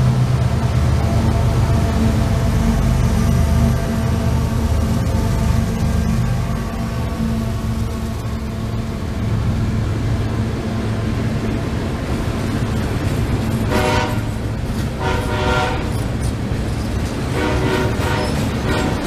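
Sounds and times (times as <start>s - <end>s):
steel wheels rumbling on rail: 0.0s - 19.0s
train horn blasts: 13.6s - 16.1s, 17.2s - 19.0s.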